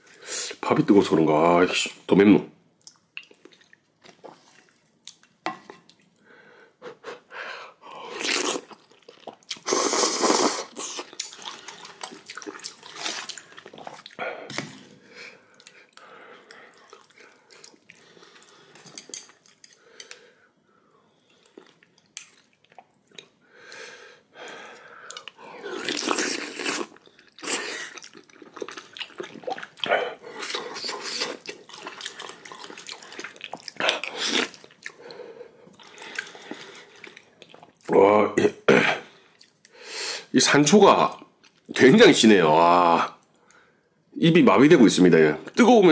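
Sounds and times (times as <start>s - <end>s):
chewing: 2.8s - 6.2s, 10.7s - 14.2s, 15.5s - 20.2s, 25.1s - 37.9s
slurping: 8.0s - 14.2s, 25.1s - 37.8s.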